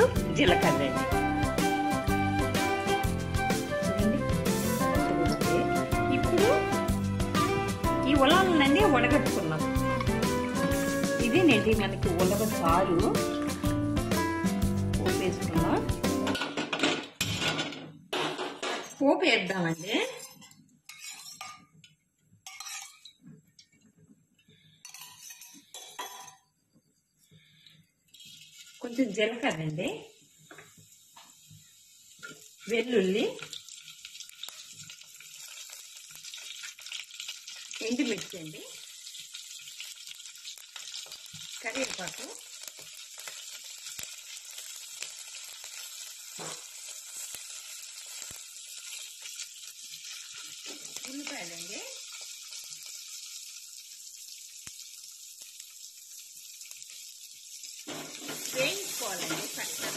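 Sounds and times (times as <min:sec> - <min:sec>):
hot oil sizzling in a pot: 0:00.0 - 0:17.5, 0:18.4 - 0:21.6, 0:22.4 - 0:23.2, 0:24.7 - 0:26.3, 0:27.3 - 0:59.9
utensils clinking on metal pot: 0:19.6 - 0:23.2, 0:24.8 - 0:26.4, 0:57.9 - 0:59.9.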